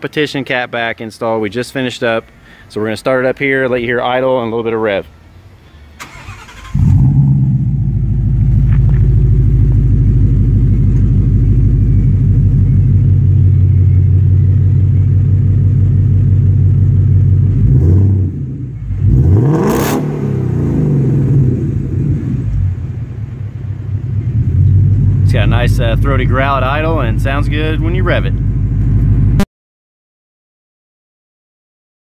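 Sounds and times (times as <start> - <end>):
car engine starting and idling: 5.3 - 29.4
engine revving: 6.0 - 13.0, 17.5 - 22.8.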